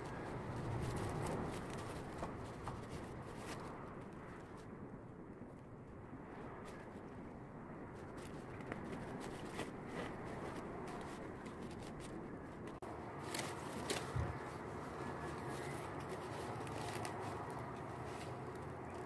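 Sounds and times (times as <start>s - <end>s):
large leaves rustling: 0.0s - 4.7s, 7.9s - 19.0s.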